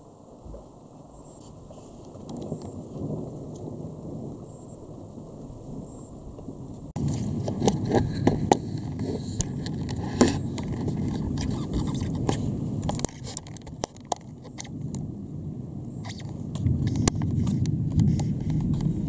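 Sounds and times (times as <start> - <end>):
dense low rumbling: 0.3 - 19.0.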